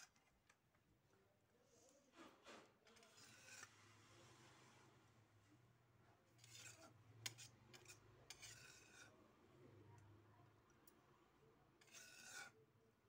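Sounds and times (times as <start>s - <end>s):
metal spatula scraping a pan: 2.9s - 4.7s, 6.3s - 9.2s, 11.8s - 12.6s.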